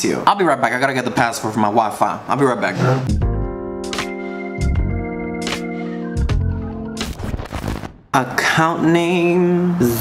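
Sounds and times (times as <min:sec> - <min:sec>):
organ chords: 0:03.1 - 0:07.9.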